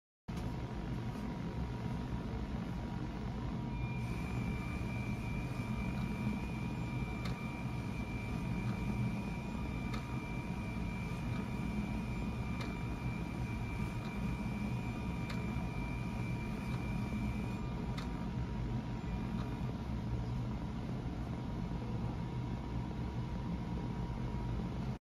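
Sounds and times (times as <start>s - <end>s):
motors whining: 0.4s - 19.8s.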